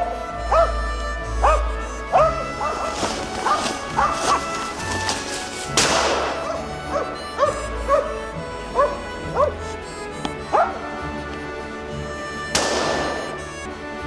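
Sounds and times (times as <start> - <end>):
dog barking: 0.5 - 0.8, 1.4 - 4.5, 6.4 - 8.2, 8.8 - 9.5, 10.5 - 10.8
loud crash: 5.8 - 6.4.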